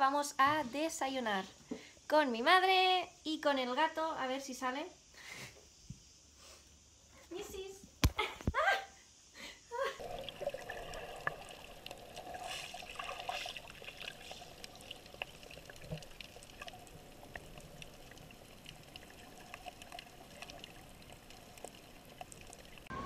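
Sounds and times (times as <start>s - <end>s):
underwater bubbling: 10.0s - 23.0s.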